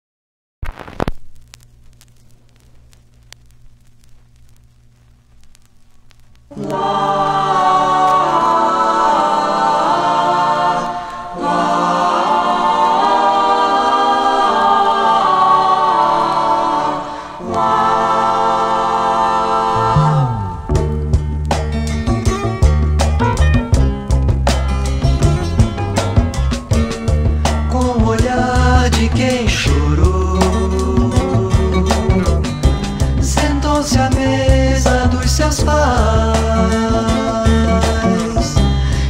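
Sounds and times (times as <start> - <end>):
vinyl surface crackle: 0.6 - 9.2
low steady hum: 0.8 - 9.2
voices singing over a band: 6.5 - 21.0, 27.7 - 39.0.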